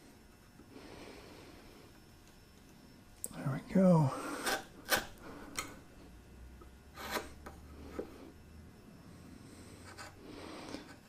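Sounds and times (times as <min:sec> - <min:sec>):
faint low hum: 0:00.0 - 0:11.0
metal tool scraping wood: 0:06.9 - 0:08.1.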